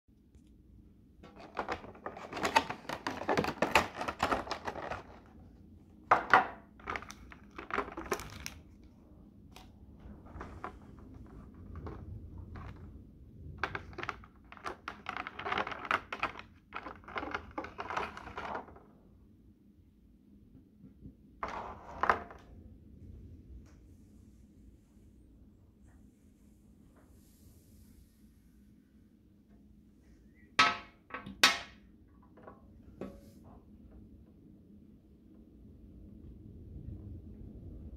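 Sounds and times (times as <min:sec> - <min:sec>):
cardboard and plastic rustling: 0:01.2 - 0:05.5, 0:06.1 - 0:08.9, 0:13.6 - 0:18.9.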